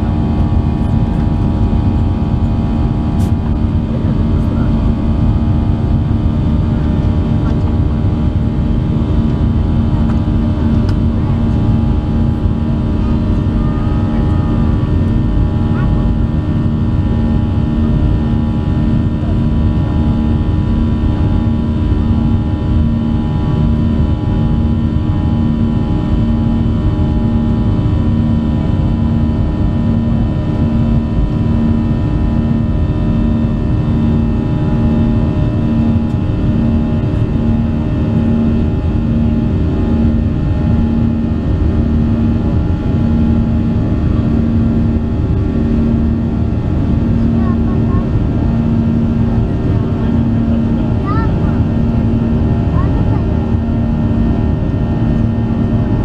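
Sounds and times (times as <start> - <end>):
jet engines in cabin: 0.0 - 56.0.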